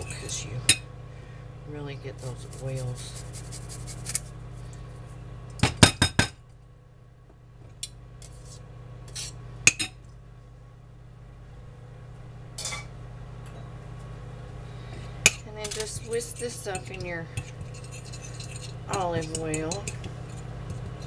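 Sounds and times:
steady low hum: 0:00.0 - 0:21.0
utensils clinking on ceramic bowl: 0:15.3 - 0:21.0.

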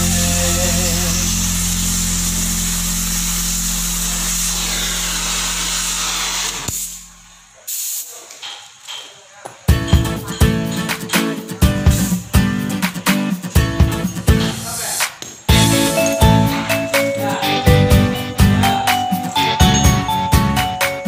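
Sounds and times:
cutting torch hissing: 0:00.0 - 0:08.9, 0:14.4 - 0:17.7.

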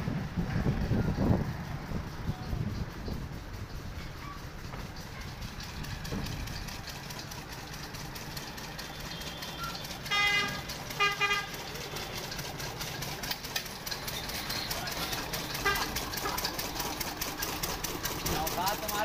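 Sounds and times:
road traffic: 0:00.0 - 0:19.0
vehicle horn blasts: 0:08.8 - 0:12.2, 0:14.2 - 0:16.4.

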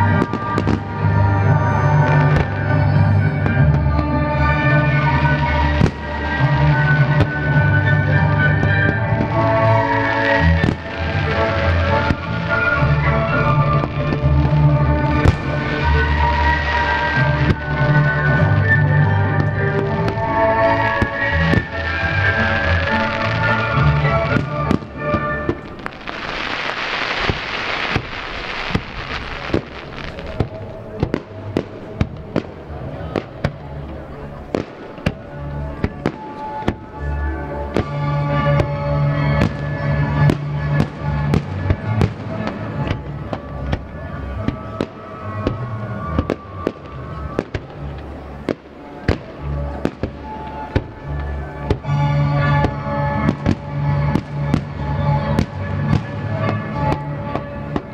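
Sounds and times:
music with heavy bass: 0:00.0 - 0:27.8
fireworks bursting with bangs: 0:00.0 - 0:57.9
music: 0:00.0 - 0:57.9
fireworks hissing: 0:04.8 - 0:32.3.

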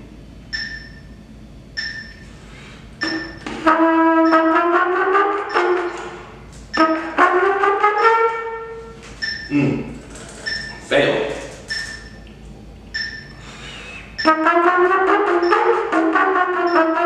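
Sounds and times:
solo trumpet: 0:03.6 - 0:09.0, 0:14.2 - 0:17.0.

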